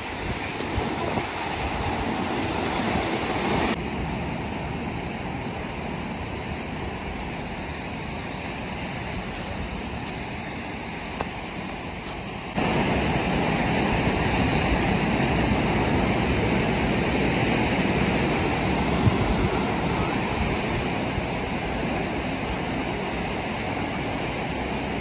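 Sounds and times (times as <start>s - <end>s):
surf washing up beach: 0.0s - 25.0s.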